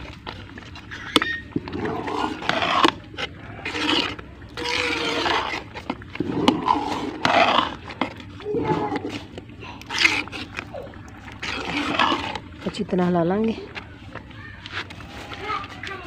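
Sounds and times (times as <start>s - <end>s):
spoon scraping a metal pot: 0.9s - 12.8s.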